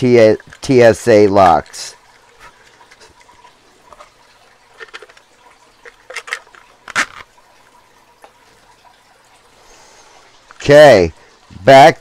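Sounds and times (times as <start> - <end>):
plastic case clicks and rattles: 4.8 - 5.2, 5.8 - 7.3.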